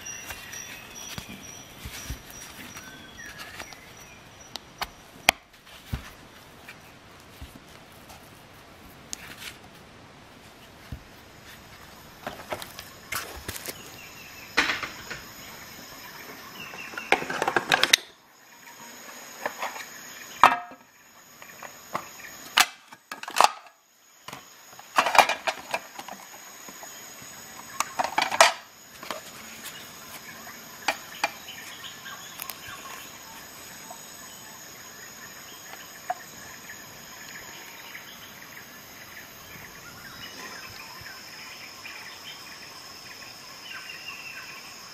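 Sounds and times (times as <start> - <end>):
rustling: 0.0 - 14.1, 28.0 - 33.8.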